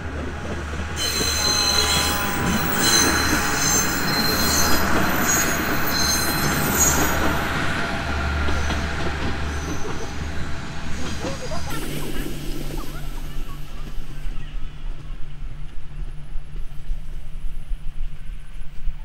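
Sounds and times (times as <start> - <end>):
railcar engine droning: 0.0 - 19.0
train wheels squealing on rails: 0.2 - 14.6.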